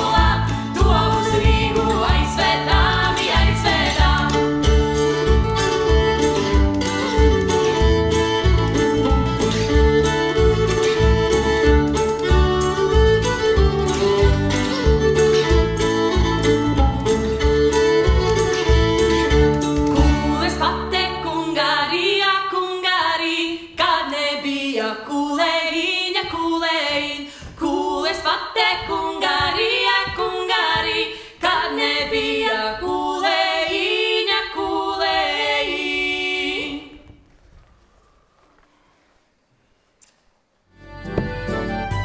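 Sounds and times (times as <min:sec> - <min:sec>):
instrumental music with bass line: 0:00.0 - 0:21.2, 0:40.7 - 0:42.0.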